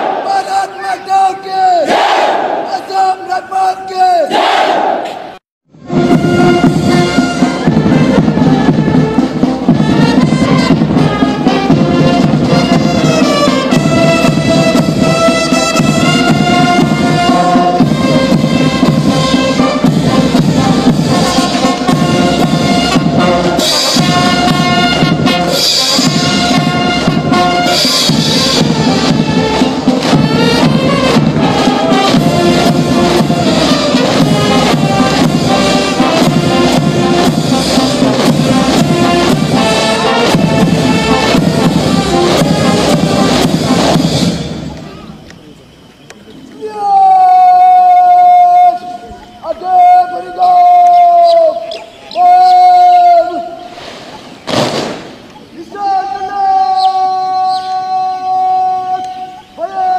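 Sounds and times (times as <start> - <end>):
brass band playing a march: 1.8 - 2.7, 4.3 - 45.2.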